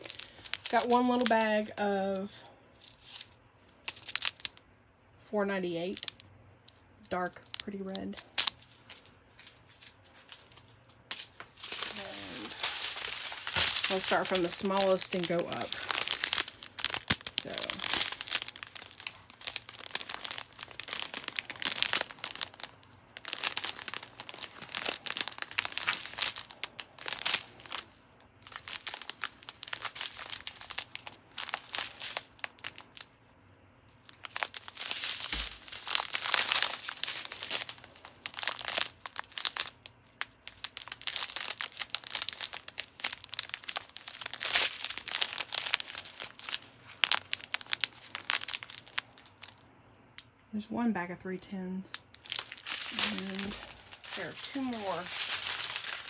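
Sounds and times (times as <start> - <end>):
plastic bags crinkling: 0.0 - 4.6, 5.9 - 49.6, 51.9 - 56.0.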